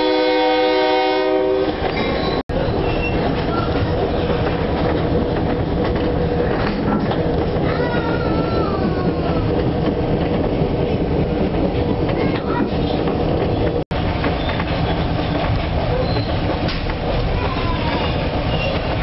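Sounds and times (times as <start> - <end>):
locomotive rumble: 0.0 - 19.0
wheels clickety-clack on rails: 1.6 - 19.0
faint high wheel squeal: 1.9 - 3.7, 15.9 - 16.4.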